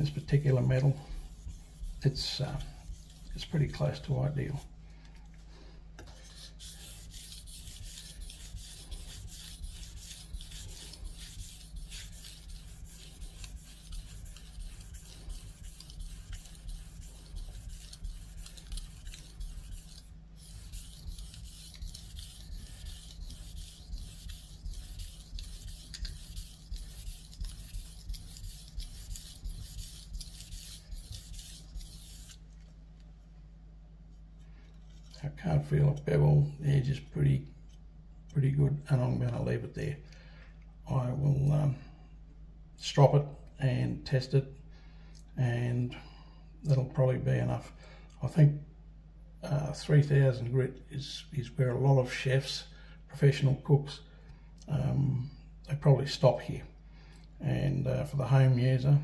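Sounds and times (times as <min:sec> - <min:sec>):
blade scraping on whetstone: 0:06.2 - 0:32.4.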